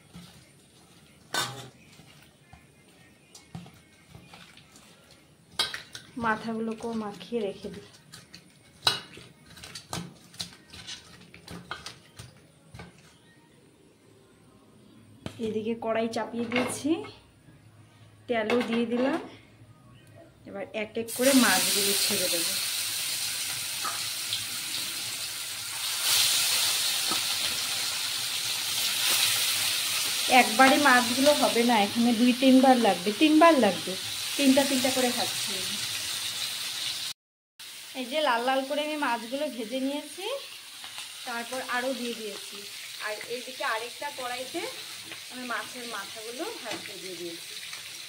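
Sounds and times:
fish sizzling in hot oil: 21.1s - 48.0s.

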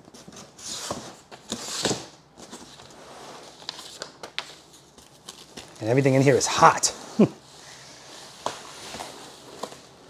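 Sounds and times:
cardboard flaps scraping and rustling: 0.1s - 5.8s, 7.8s - 10.0s.

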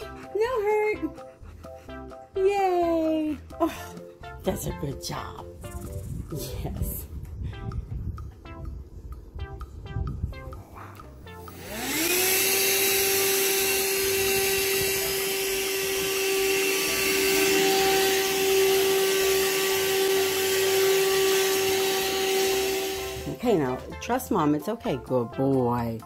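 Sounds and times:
vacuum cleaner motor whine: 11.4s - 23.4s.

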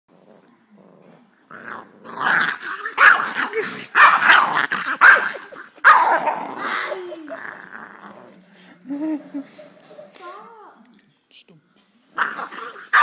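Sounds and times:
puppy growling and barking: 0.2s - 8.4s, 12.2s - 13.0s.

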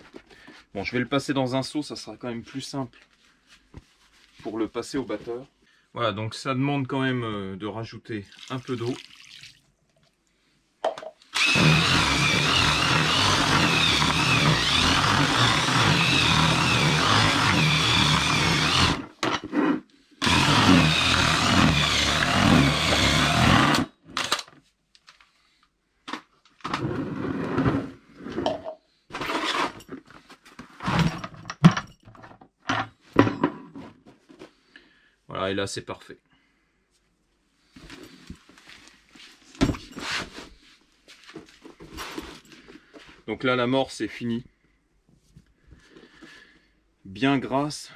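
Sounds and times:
drill mixer whining: 11.3s - 19.1s, 20.2s - 24.3s.

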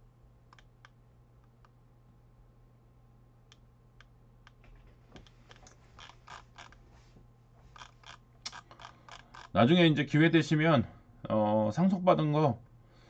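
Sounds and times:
computer mouse clicking: 0.5s - 1.8s, 7.8s - 9.5s.

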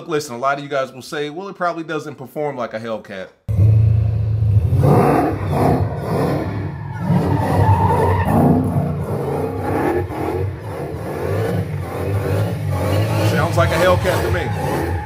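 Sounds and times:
car engine revving hard: 3.5s - 15.0s
tyres squealing: 6.2s - 15.0s.

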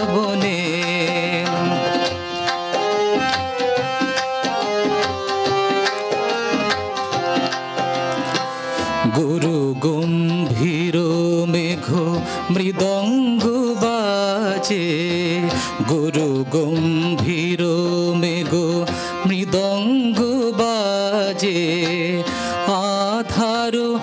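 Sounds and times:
man singing: 0.0s - 2.4s, 8.4s - 24.0s
tabla strokes: 0.0s - 9.3s
harmonium melody: 0.0s - 24.0s.

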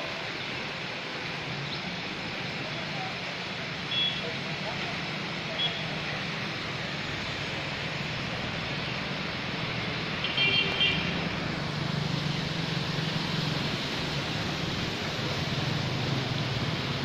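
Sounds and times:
tyres hissing through water: 0.0s - 17.0s
vehicle horn beeps: 3.9s - 4.3s, 10.2s - 11.1s.

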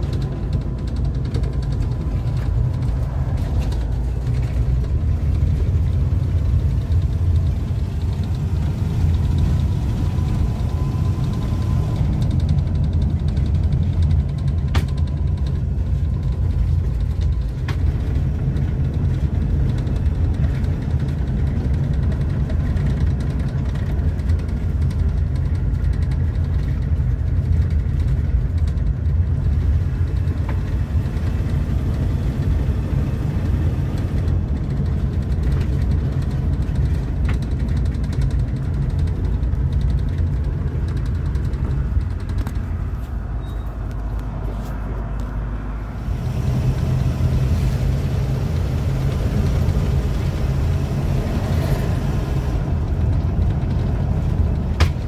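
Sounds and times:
engine rumbling: 0.0s - 55.0s.

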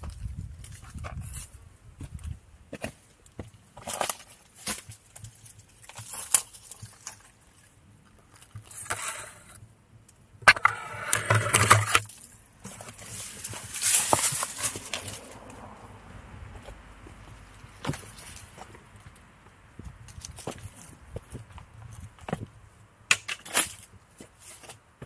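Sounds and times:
footsteps on rocks and leaves: 0.0s - 8.9s, 12.1s - 15.5s, 16.5s - 22.6s, 23.5s - 25.0s
rustling through brush: 11.9s - 22.4s.

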